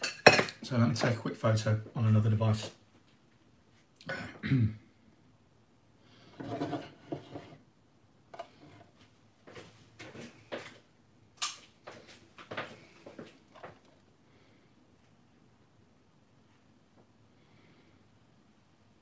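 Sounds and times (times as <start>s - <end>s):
metal dish scraping on wood: 6.3s - 7.6s, 8.4s - 8.9s.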